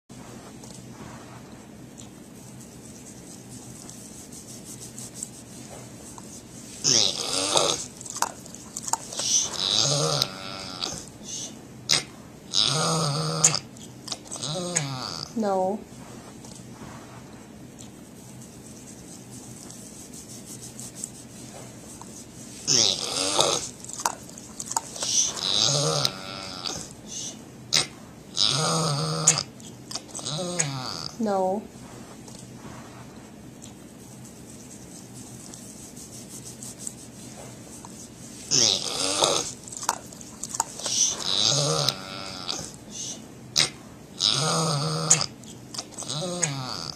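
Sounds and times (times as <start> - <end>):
pig grunting: 6.8 - 7.9, 9.1 - 11.1, 11.9 - 13.7, 14.3 - 15.4, 22.7 - 23.8, 25.0 - 27.0, 27.7 - 29.6, 30.2 - 31.2, 38.5 - 39.6, 40.8 - 42.8, 43.6 - 45.4, 46.0 - 46.9.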